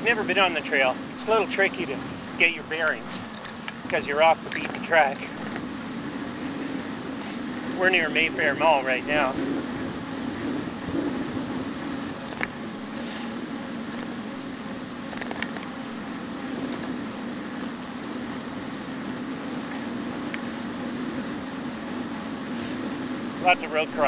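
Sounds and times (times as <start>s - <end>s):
bicycle tyres rolling on pavement: 0.0s - 24.0s
wind over the microphone: 3.8s - 13.0s.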